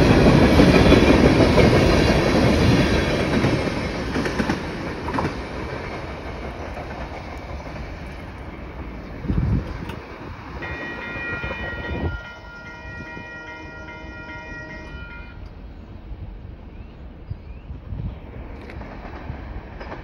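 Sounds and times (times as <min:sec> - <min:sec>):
wind buffeting microphone: 0:00.0 - 0:13.6, 0:15.9 - 0:20.0
freight train rumbling: 0:00.0 - 0:20.0
distant locomotive air horn: 0:10.6 - 0:15.5.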